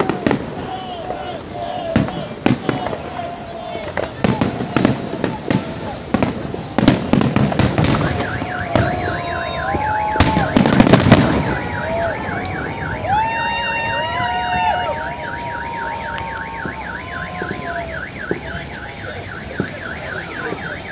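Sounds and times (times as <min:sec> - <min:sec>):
fireworks bangs and crackles: 0:00.0 - 0:20.9
warbling car alarm: 0:07.7 - 0:20.9
gliding alarm tones: 0:07.9 - 0:20.9.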